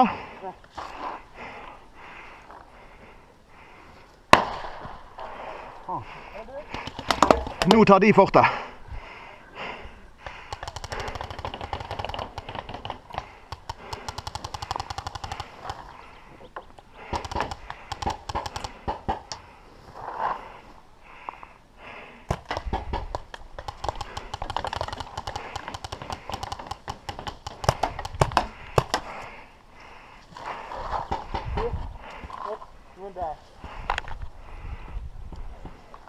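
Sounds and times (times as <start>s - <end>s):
paintball markers firing: 6.7s - 7.9s, 10.2s - 16.0s, 17.0s - 19.4s, 22.3s - 29.2s.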